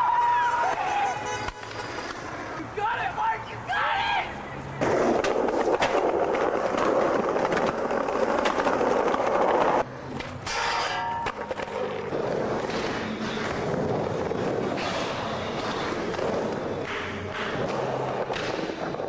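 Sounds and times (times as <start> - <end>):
skateboard clicks and knocks: 0.0 - 2.6, 4.8 - 19.0
skateboard wheels rolling on pavement: 0.0 - 19.0
skateboard grinding a metal rail: 4.8 - 19.0.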